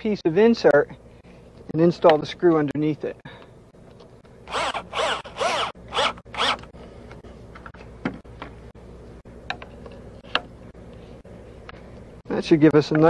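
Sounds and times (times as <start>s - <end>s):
cordless drill motor bursts: 4.5s - 6.7s.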